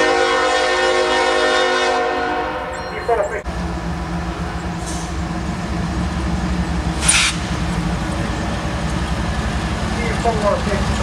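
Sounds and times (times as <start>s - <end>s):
locomotive engine drone: 1.9s - 11.0s
sharp hiss: 7.0s - 7.6s.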